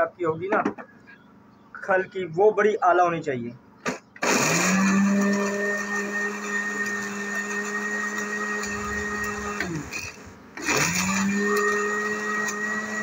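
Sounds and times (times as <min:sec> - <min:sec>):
electric grinder running: 0:04.2 - 0:13.0.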